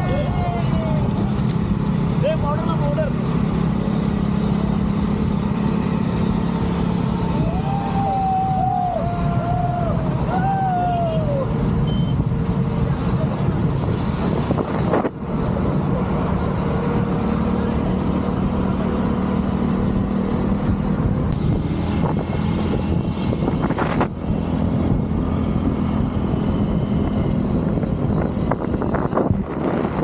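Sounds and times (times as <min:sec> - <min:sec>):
motorcycle engine running: 0:00.8 - 0:08.2
wind rushing over microphone: 0:12.2 - 0:16.0, 0:19.8 - 0:30.0.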